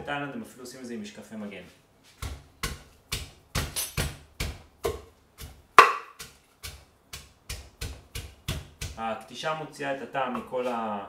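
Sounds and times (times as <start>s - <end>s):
pestle pounding in a mortar: 2.2s - 9.0s.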